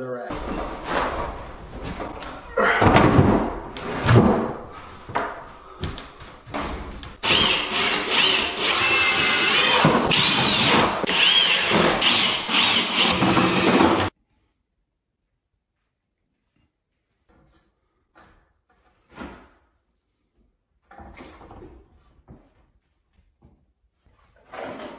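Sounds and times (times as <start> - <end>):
knocks and clunks: 0.3 - 7.4
power drill whining: 7.2 - 14.1.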